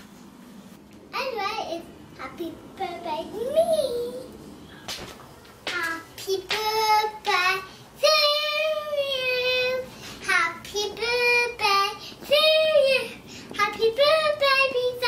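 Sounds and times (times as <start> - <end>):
girl singing: 1.2 - 4.4, 5.6 - 15.0.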